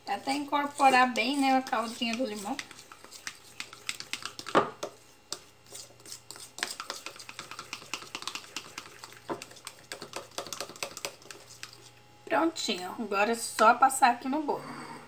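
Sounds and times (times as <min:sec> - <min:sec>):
spoon stirring in a mug: 0:00.0 - 0:12.0.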